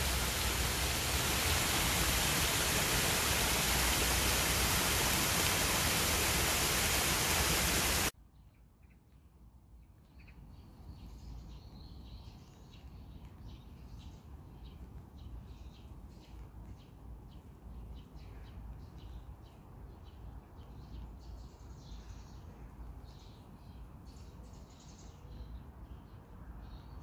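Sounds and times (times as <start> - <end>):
small stream rushing: 0.0 - 8.1
wet hush of rain: 0.0 - 8.1
small birds chirping: 0.0 - 27.0.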